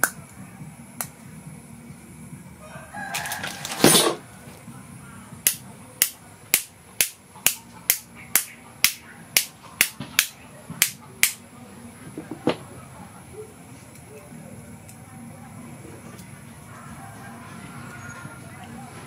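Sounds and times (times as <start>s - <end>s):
rooster crowing: 2.6s - 4.3s, 16.6s - 18.8s.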